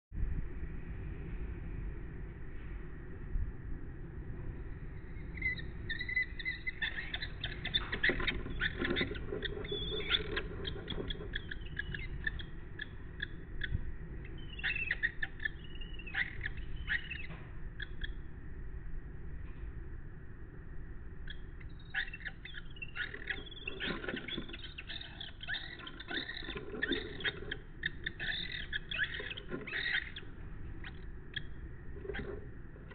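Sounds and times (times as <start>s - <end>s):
kestrels chattering calls: 5.2s - 18.2s, 21.3s - 32.9s
birds scuffling: 6.7s - 12.4s, 23.0s - 30.4s.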